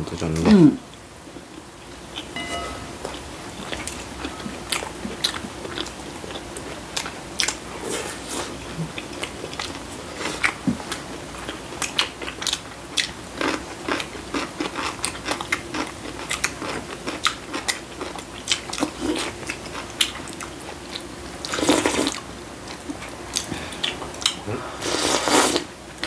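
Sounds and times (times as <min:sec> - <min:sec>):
people chewing and slurping: 0:03.7 - 0:26.0.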